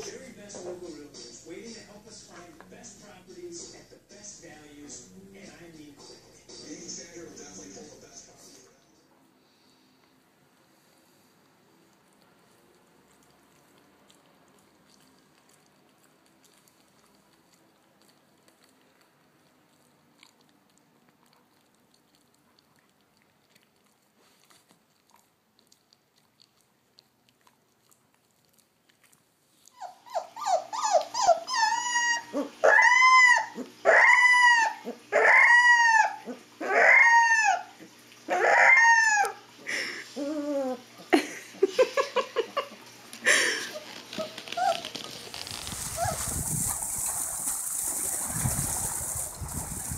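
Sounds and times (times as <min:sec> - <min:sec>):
dog gnawing a chew: 0:11.4 - 0:32.8, 0:42.7 - 0:49.9
dog howling: 0:29.8 - 0:39.5, 0:45.8 - 0:46.9.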